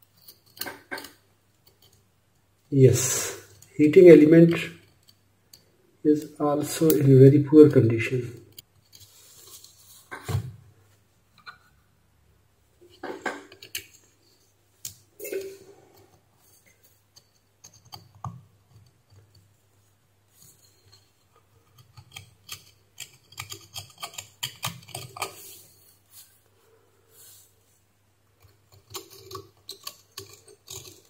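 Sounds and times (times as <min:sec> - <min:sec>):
hand tool clicking on metal: 0:28.4 - 0:31.0.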